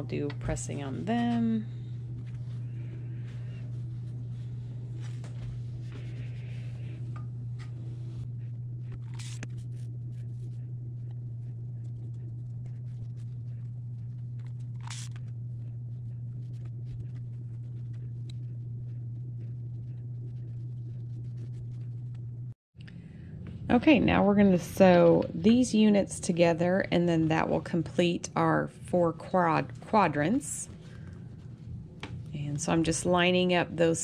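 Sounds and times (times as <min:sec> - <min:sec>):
steady low hum: 0:00.0 - 0:34.0
iron rubbing over fabric: 0:00.1 - 0:10.7.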